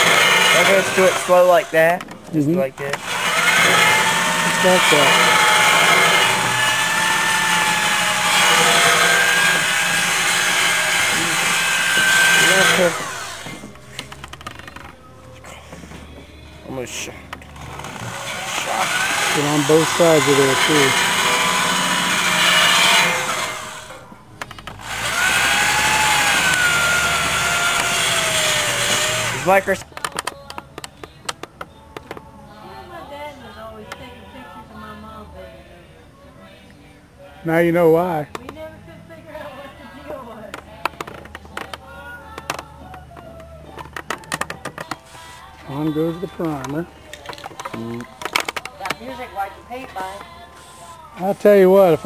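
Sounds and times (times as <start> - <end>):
power tool motor whine: 0.0 - 1.8, 2.9 - 14.8, 17.6 - 24.0, 24.8 - 29.8
sanding disc grinding steel: 0.0 - 1.9, 3.0 - 13.7, 17.6 - 24.0, 24.8 - 29.8.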